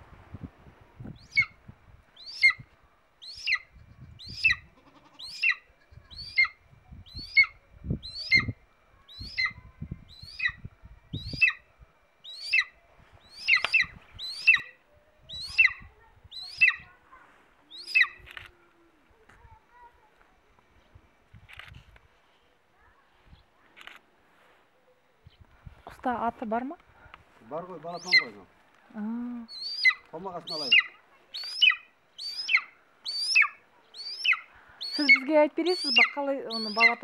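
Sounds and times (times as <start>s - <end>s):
eagle yelping calls: 1.2s - 1.6s, 2.2s - 17.0s, 17.7s - 18.3s, 27.9s - 28.5s, 29.4s - 37.0s.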